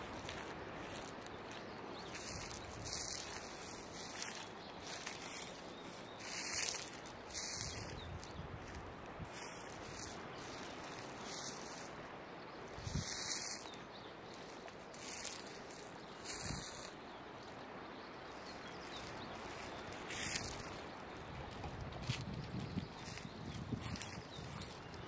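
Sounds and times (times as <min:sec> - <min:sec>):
outdoor background noise: 0:00.0 - 0:25.0.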